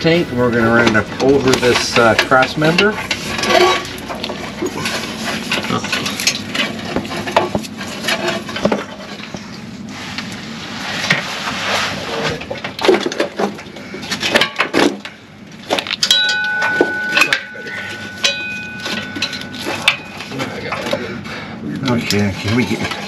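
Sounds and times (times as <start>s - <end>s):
wiring harness scraping underbody: 0.5s - 12.6s.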